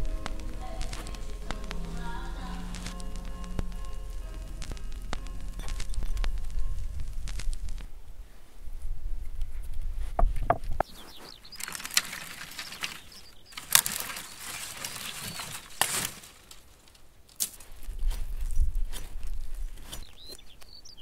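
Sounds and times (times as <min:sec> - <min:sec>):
dry twigs rustling and snapping: 0:00.0 - 0:07.9, 0:09.4 - 0:21.0
low wind rumble: 0:00.0 - 0:16.4.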